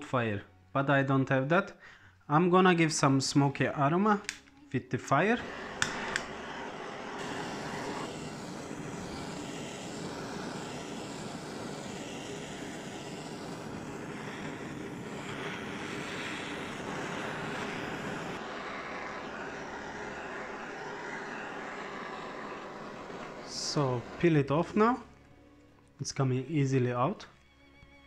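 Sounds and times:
gas torch hissing: 5.1s - 25.1s.

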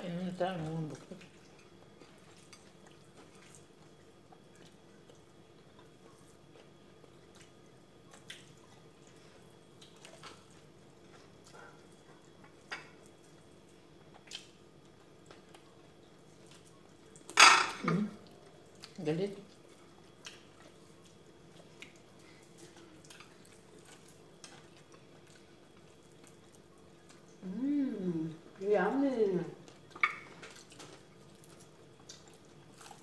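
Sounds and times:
chewing smacks and clicks: 1.8s - 9.2s, 14.1s - 17.3s, 19.6s - 27.4s, 29.7s - 33.0s.

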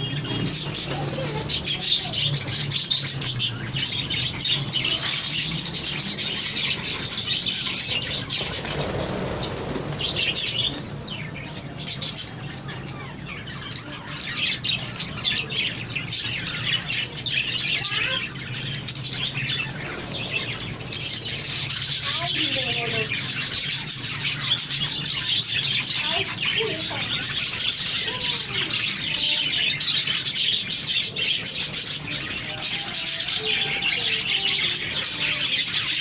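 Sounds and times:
budgerigars chattering: 0.0s - 36.0s
wings flapping: 6.4s - 12.2s.

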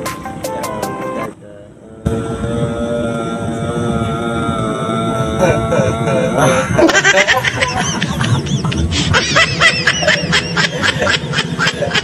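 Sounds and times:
man giggling: 5.5s - 12.0s.

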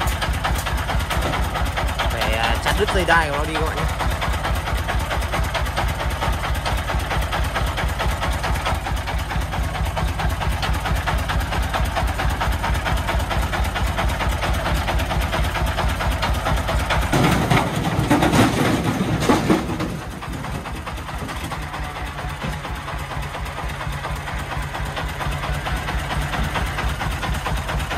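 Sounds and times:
diesel engine knocking idle: 0.0s - 27.9s.

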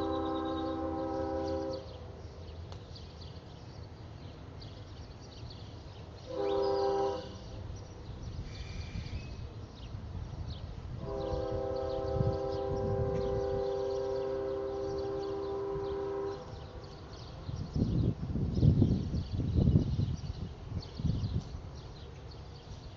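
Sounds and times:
train horn blasts: 0.0s - 2.0s, 6.2s - 7.6s, 11.0s - 17.0s.

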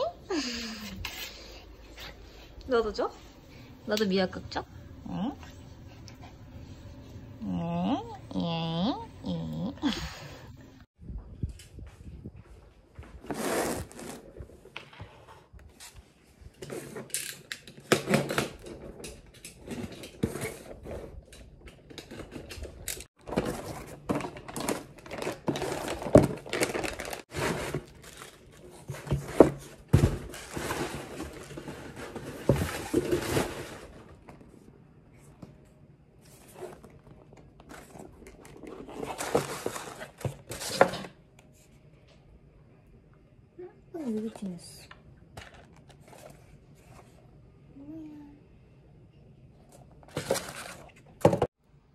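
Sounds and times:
paper wrap rustling and tearing: 23.2s - 29.2s
boxes knocking when set down: 28.9s - 34.2s.

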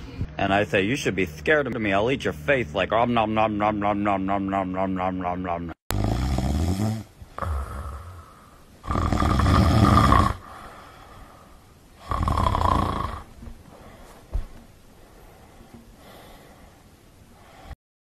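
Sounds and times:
dog snoring: 5.9s - 8.2s, 8.8s - 10.5s, 12.0s - 13.3s.

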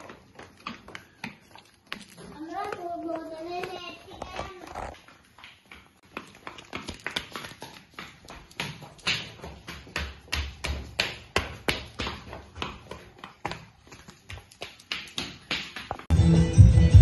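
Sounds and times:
children's footsteps on tiled floor: 0.0s - 16.1s.

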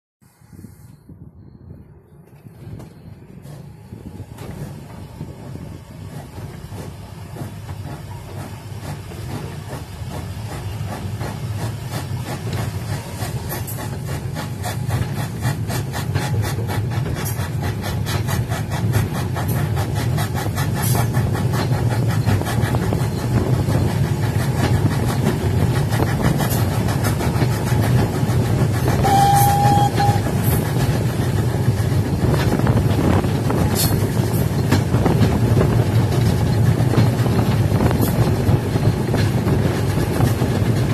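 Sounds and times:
train wheels rumbling on track: 0.9s - 40.9s
steam locomotive whistle blast: 28.9s - 30.6s.

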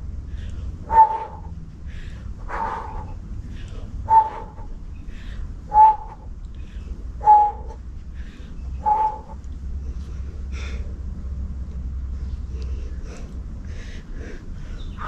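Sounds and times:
dog barking: 0.8s - 1.5s, 2.5s - 3.1s, 4.1s - 4.7s, 7.2s - 7.8s, 8.8s - 9.4s.

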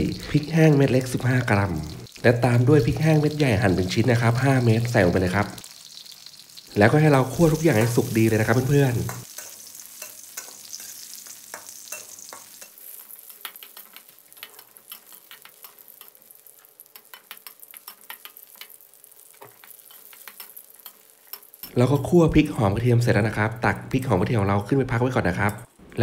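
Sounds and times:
oil sizzling: 0.0s - 26.0s
metal spatula scraping wok: 7.5s - 21.7s.

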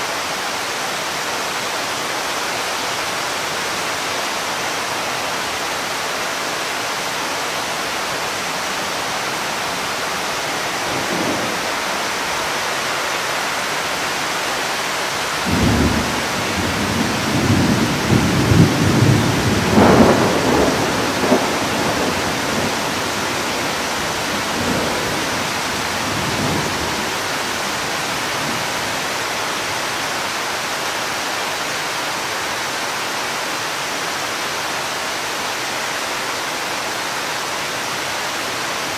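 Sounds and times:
rain hissing: 0.0s - 32.9s
thunder rumbling: 9.9s - 12.4s, 15.4s - 27.5s.

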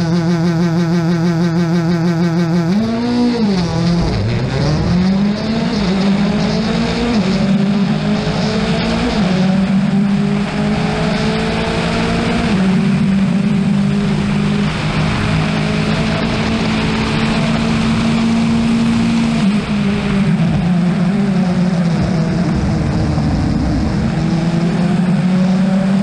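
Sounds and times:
rally car engine revving: 0.0s - 26.0s.

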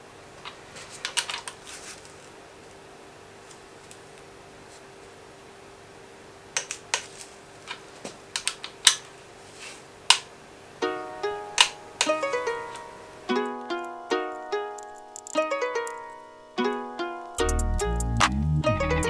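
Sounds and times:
torque wrench clicking: 14.8s - 16.0s.

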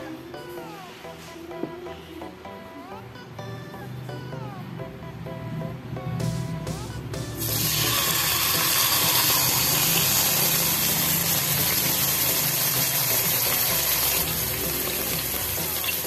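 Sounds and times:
meat sizzling in oil: 7.4s - 16.0s.

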